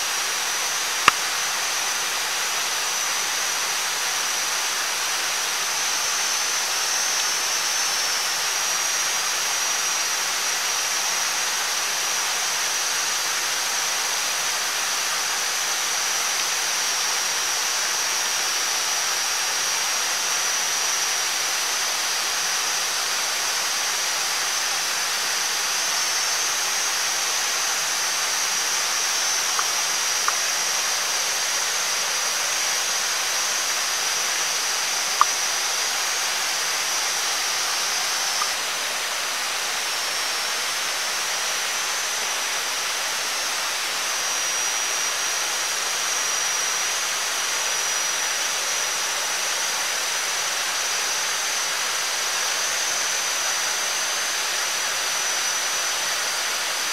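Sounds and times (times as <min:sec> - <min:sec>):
high even whine: 0:22.8 - 0:50.2.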